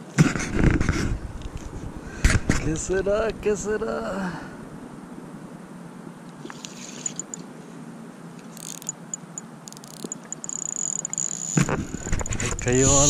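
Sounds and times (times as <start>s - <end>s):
low steady background: 1.3s - 13.0s
fishing reel clicking: 6.5s - 7.4s, 8.5s - 11.6s.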